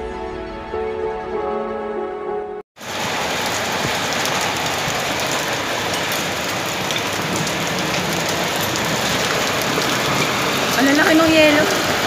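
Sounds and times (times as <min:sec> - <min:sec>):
hail and rain on concrete roof: 0:02.8 - 0:12.0
hailstones ticking: 0:02.8 - 0:12.0.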